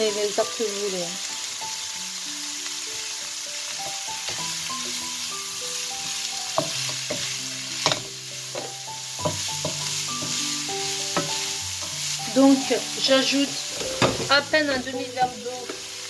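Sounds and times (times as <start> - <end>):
vegetables sizzling in a frying pan: 0.0 - 16.0
wooden spatula knocking on pan: 6.5 - 10.4, 11.1 - 12.0, 13.8 - 14.4.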